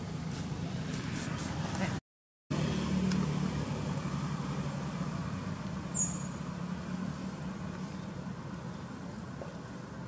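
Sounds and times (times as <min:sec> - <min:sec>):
high chirp: 0:05.9 - 0:06.4.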